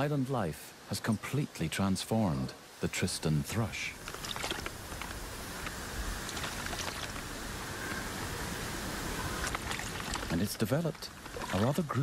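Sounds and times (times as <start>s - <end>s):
water rushing: 0.0s - 12.0s
bird wings splashing water: 4.0s - 8.0s, 9.0s - 10.4s, 11.0s - 11.8s.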